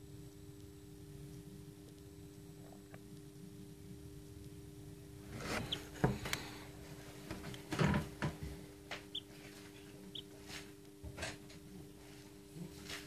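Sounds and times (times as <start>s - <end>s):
chick peeping: 9.0s - 10.3s.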